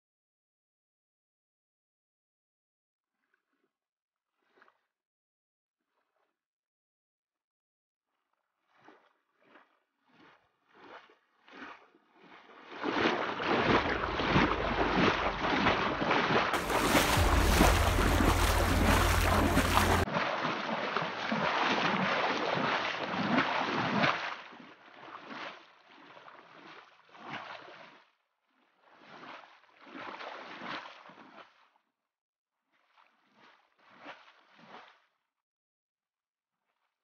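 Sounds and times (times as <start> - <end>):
floodwater rushing: 13.1 - 23.4
wind buffeting microphone: 13.4 - 20.0.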